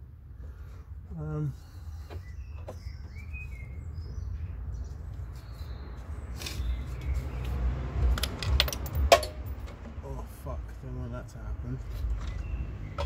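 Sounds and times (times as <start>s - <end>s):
birds chirping faintly: 0.4s - 7.8s.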